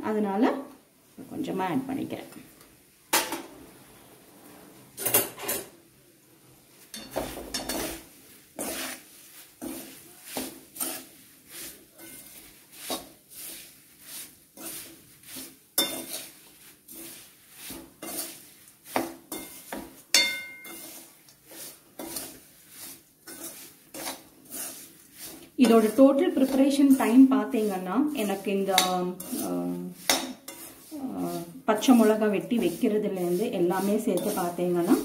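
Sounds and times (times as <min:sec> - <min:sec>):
metal spoon scraping a metal pan: 0:06.9 - 0:35.0
metallic ring: 0:20.2 - 0:20.8.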